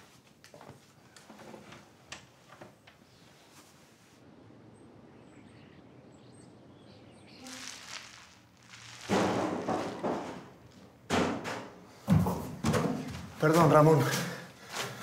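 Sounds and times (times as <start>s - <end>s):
faint bird chirps: 4.6s - 9.0s
faint rustling: 7.4s - 11.0s.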